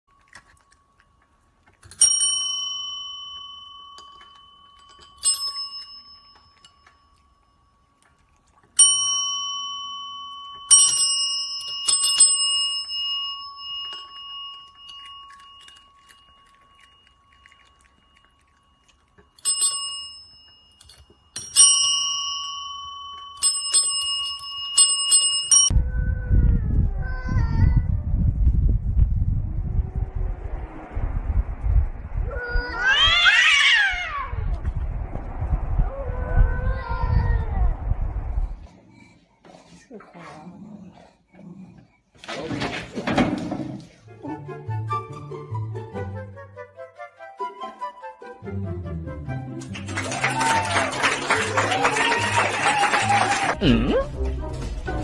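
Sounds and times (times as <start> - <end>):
service bell dings: 1.9 - 8.0, 8.8 - 25.7.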